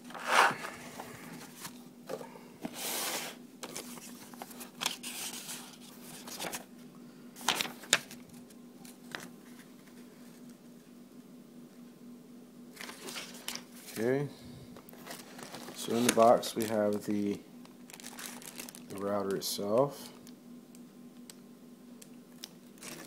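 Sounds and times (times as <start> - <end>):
paper pages rustling: 0.0 - 1.8, 2.6 - 6.7, 7.4 - 10.5, 12.8 - 14.1, 14.9 - 17.2
packaging crackles: 14.8 - 20.4, 22.0 - 23.0.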